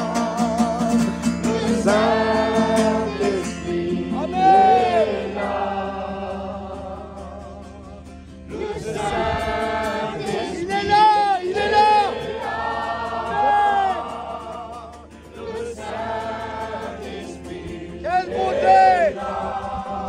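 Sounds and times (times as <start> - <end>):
acoustic guitar strumming: 0.0 - 20.0
crowd singing a worship song: 0.0 - 20.0.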